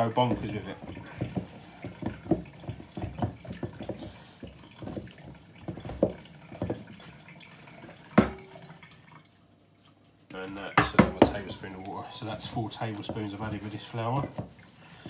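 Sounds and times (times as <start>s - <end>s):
hands squelching wet dough: 0.0s - 8.4s, 10.5s - 15.0s
knocks against steel bowl: 8.2s - 8.5s.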